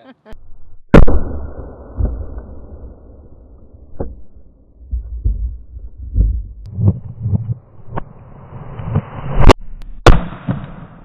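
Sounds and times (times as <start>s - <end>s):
low rumble: 0.4s - 10.0s
loud shotgun blast: 0.9s - 1.6s, 10.0s - 11.0s.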